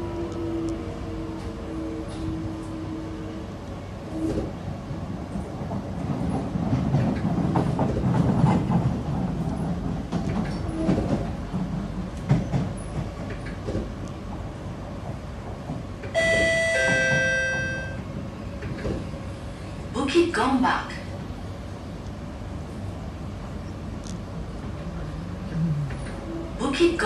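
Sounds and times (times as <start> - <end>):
train carriage rumble: 0.0 - 27.0
two-note chime: 16.2 - 18.0.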